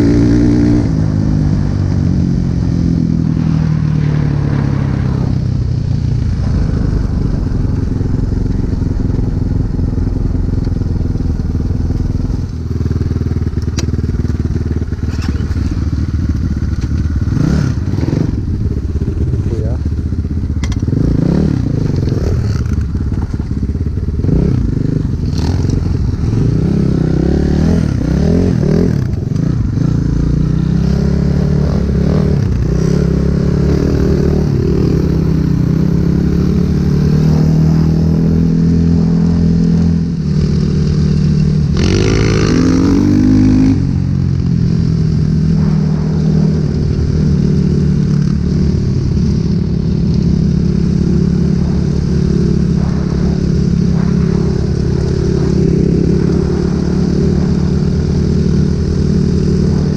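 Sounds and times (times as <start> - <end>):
dirt bike engines: 0.0 - 59.9
scrape and clatter of riding: 11.9 - 18.2, 49.3 - 59.9.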